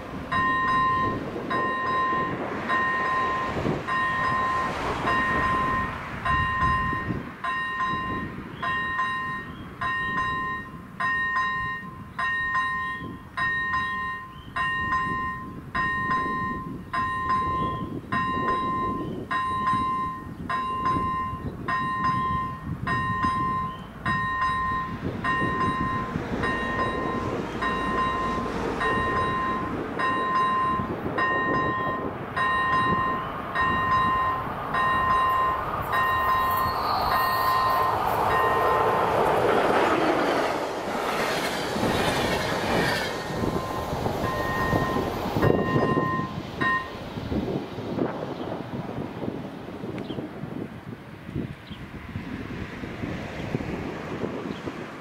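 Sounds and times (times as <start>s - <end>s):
approaching train rumble: 0.0s - 55.0s
level crossing bell dinging: 0.4s - 38.8s, 43.6s - 47.0s.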